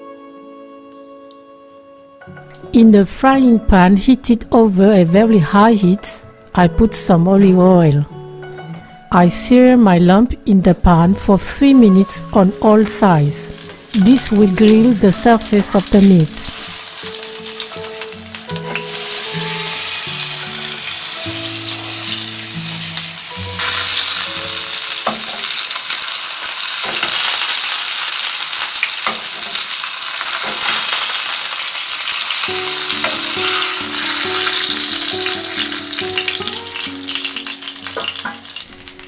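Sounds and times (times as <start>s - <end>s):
meat sizzling in a frying pan: 13.3s - 39.0s
meat knocking in pan: 23.6s - 26.0s, 28.6s - 31.3s.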